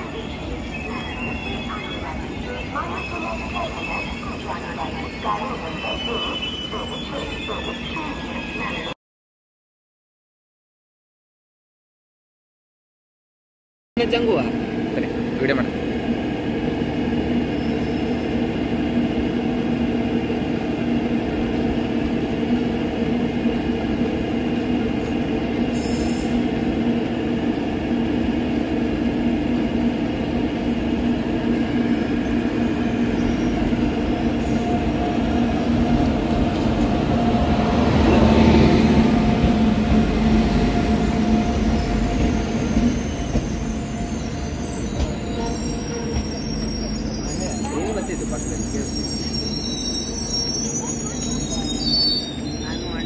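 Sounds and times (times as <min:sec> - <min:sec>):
train wheels rumbling on rails: 0:14.2 - 0:53.0.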